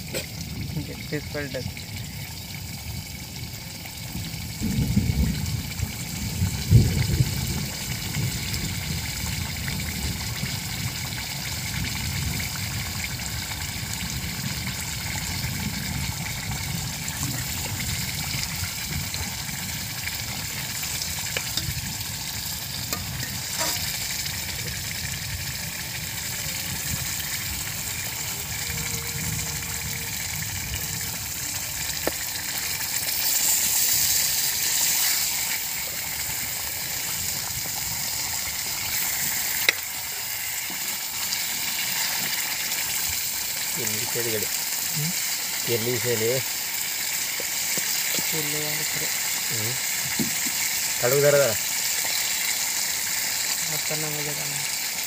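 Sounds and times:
chicken sizzling in oil: 0.0 - 55.0
ladle stirring pot: 20.8 - 21.9, 22.9 - 24.0.

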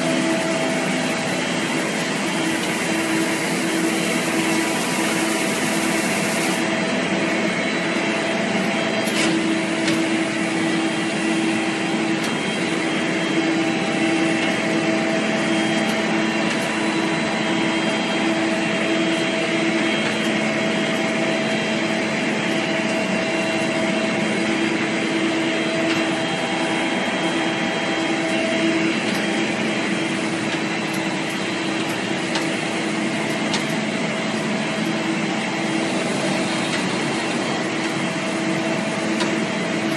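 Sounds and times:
machine hum with held tones: 0.0 - 39.9.

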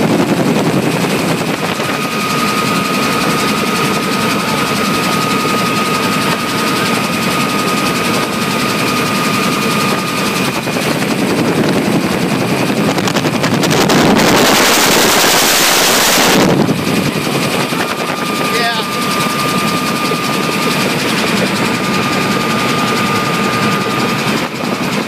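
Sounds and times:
helicopter rotor and engine drone: 0.0 - 25.0
rush of air noise: 9.8 - 25.0
steady high tone: 13.8 - 25.0.

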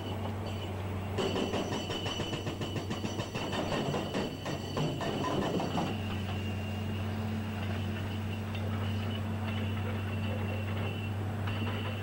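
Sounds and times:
hydraulic impact hammer on rock: 1.2 - 6.0.

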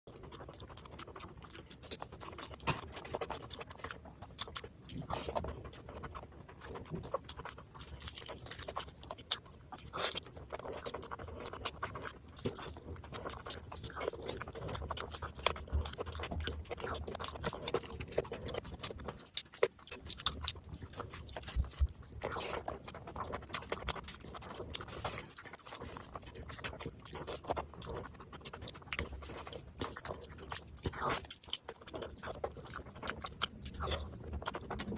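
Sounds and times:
person chewing food: 0.1 - 34.9.

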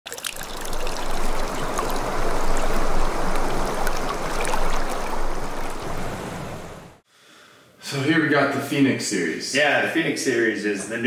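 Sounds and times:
water splashes and drips: 0.0 - 7.0
running water rushing: 0.1 - 7.0.

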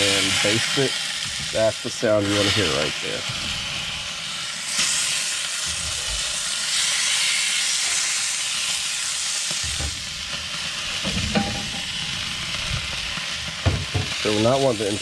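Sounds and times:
meat sizzling in a skillet: 0.0 - 15.0
low bumps: 11.0 - 14.2.

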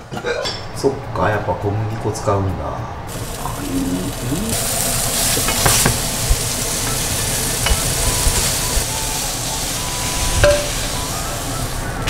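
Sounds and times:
fish sizzling in a frying pan: 3.1 - 12.0.

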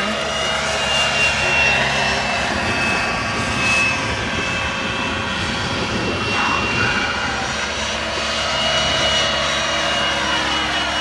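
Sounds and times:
model helicopter engine whine: 0.0 - 11.0
steady rushing noise: 0.0 - 11.0.

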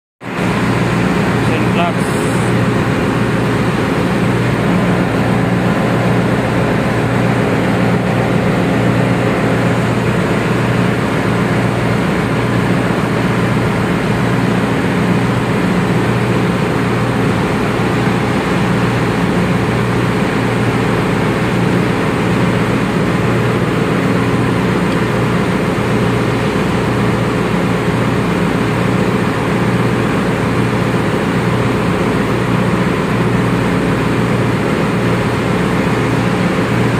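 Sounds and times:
engine room machinery drone: 0.2 - 36.9.

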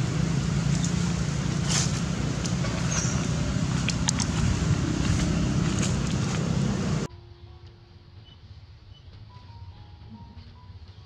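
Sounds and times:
low outdoor rumble: 0.0 - 7.8.

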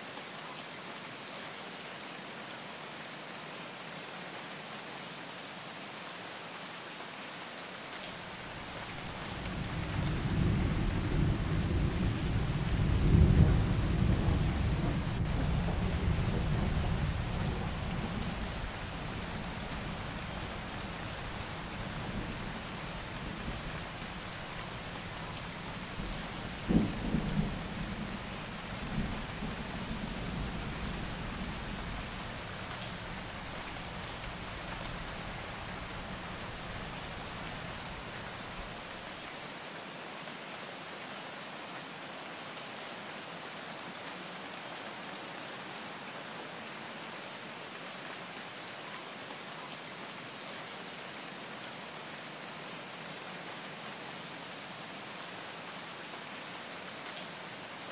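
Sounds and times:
steady rain hiss: 0.0 - 57.9
low thunder rumble: 9.2 - 19.3, 24.5 - 32.3.

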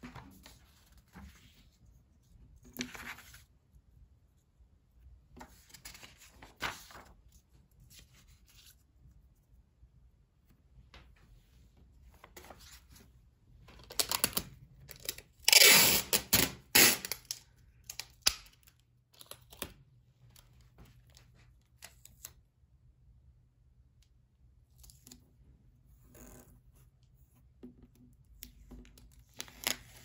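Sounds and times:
book pages rustling: 0.0 - 3.6, 5.3 - 8.8, 11.1 - 13.1.

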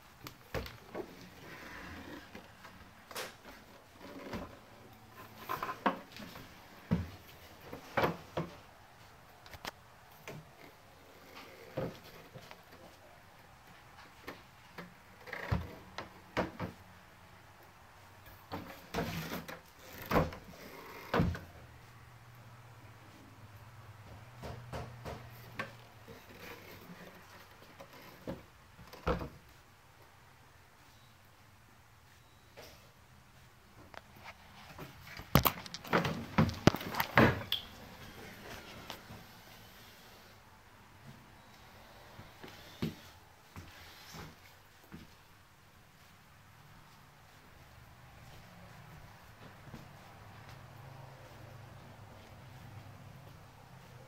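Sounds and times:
handling knocks and rubbing: 32.6 - 39.4.

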